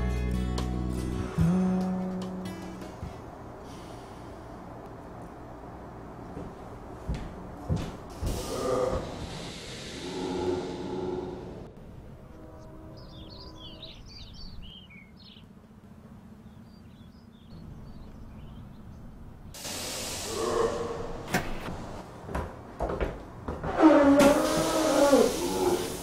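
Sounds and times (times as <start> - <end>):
low outdoor rumble: 0.4 - 19.6
small birds chirping: 13.0 - 19.5.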